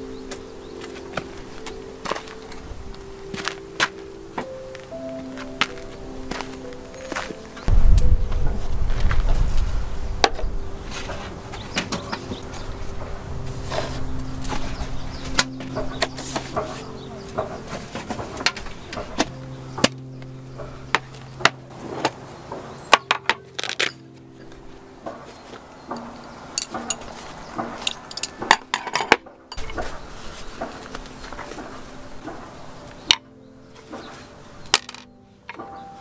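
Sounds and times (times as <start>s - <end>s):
low hum: 0.0s - 23.0s
metal tin clicks and clinks: 25.9s - 27.1s.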